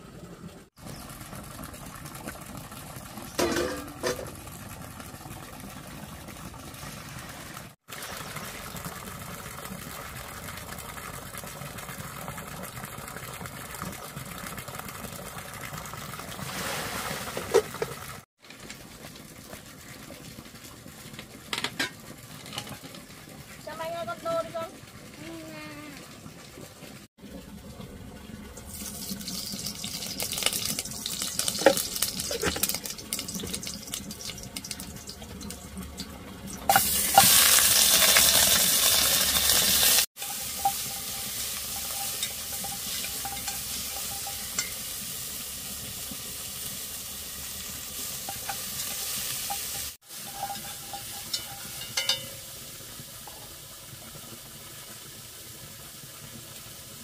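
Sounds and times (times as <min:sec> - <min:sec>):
meat sizzling in a pot: 0:28.6 - 0:35.7, 0:36.6 - 0:57.0
spoon scraping a metal pot: 0:40.2 - 0:44.8, 0:48.2 - 0:52.3.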